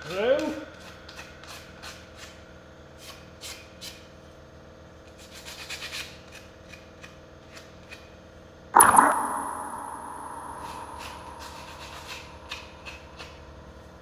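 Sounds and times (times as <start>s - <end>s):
faint steady hum: 8.8s - 14.0s.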